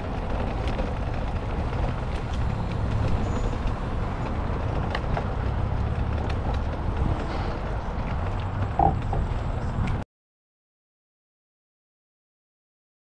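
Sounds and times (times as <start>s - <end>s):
bicycle rolling on gravel: 0.0s - 10.0s.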